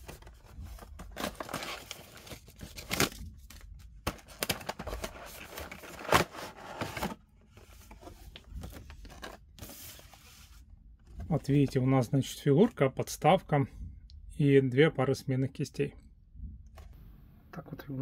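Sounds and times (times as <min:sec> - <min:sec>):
packaging crinkling and tearing: 0:00.0 - 0:07.1.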